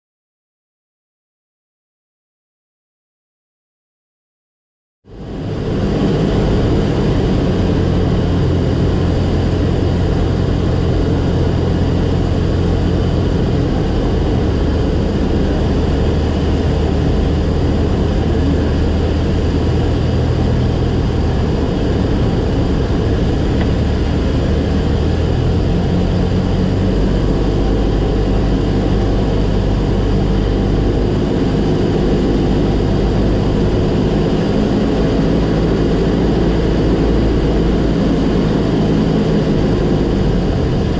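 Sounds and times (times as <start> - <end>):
propeller airplane engine droning: 5.1 - 40.9.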